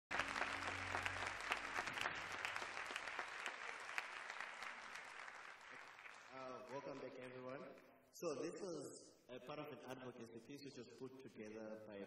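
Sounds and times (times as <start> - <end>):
audience applauding: 0.1 - 7.6.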